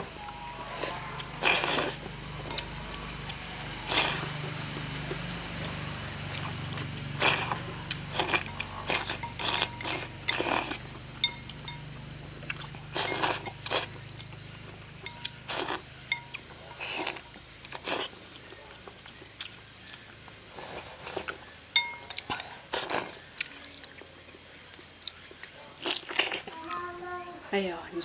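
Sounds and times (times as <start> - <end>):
person slurping noodles: 0.8 - 2.6, 3.9 - 4.3, 7.2 - 10.8.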